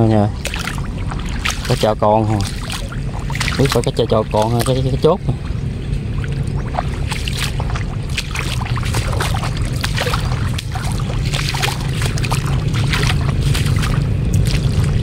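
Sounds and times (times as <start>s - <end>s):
feet splashing in shallow water: 0.0s - 15.0s
mud squelching: 0.0s - 15.0s
steady low rumble: 0.0s - 15.0s.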